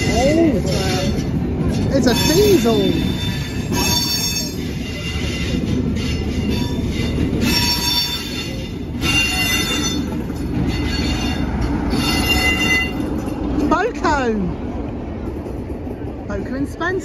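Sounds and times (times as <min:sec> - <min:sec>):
diesel locomotive: 0:00.0 - 0:17.0
train wheels rumbling on rail: 0:00.0 - 0:17.0
wheel squeal: 0:02.1 - 0:13.1.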